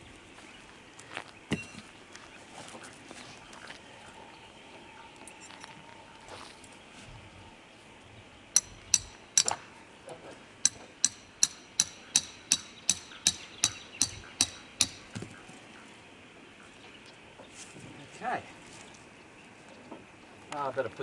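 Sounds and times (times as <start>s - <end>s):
hammer striking metal tent peg: 8.6s - 9.6s, 10.6s - 15.0s.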